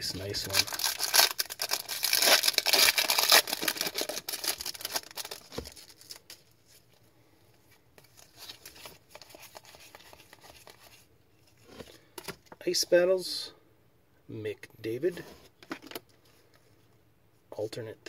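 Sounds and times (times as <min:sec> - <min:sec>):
foil wrapper tearing and crinkling: 0:00.4 - 0:06.4
cards rustling and clicking: 0:08.0 - 0:12.6.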